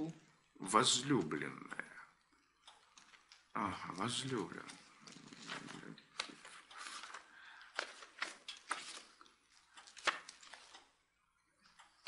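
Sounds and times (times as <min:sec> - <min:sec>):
book pages turning: 0:02.8 - 0:10.9.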